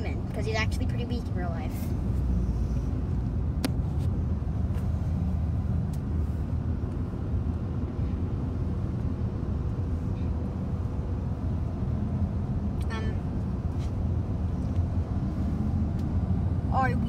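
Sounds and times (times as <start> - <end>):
vehicle cabin road rumble: 0.0 - 17.0.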